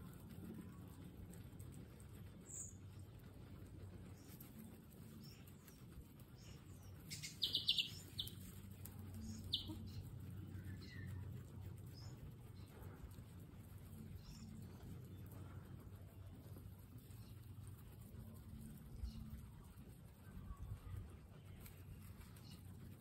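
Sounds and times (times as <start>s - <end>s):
guinea pigs munching grass: 0.0s - 23.0s.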